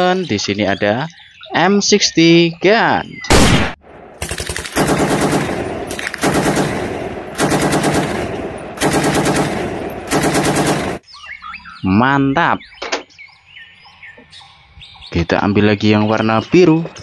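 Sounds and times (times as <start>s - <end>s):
electronic machine-gun bursts: 4.2s - 5.6s, 6.2s - 6.8s, 7.4s - 11.0s.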